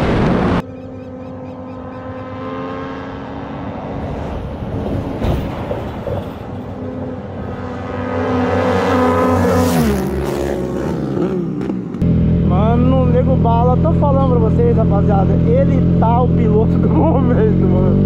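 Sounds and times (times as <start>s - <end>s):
highway engine drone: 0.0s - 18.0s
vehicle passing close by: 0.2s - 11.8s.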